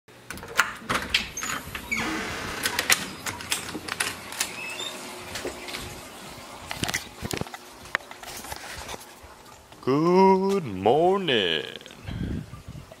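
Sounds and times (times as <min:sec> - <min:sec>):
screen door opening: 0:00.2 - 0:07.6
short high squeaks: 0:04.5 - 0:05.1.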